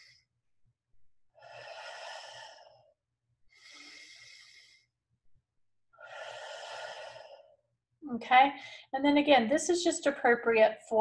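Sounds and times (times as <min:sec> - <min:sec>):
woman breathing deeply: 0:00.0 - 0:00.3, 0:01.3 - 0:05.0, 0:05.9 - 0:07.7.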